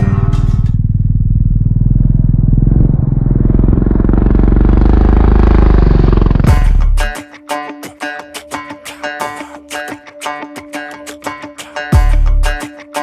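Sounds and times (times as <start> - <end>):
music track: 0.0 - 0.8, 6.5 - 13.0.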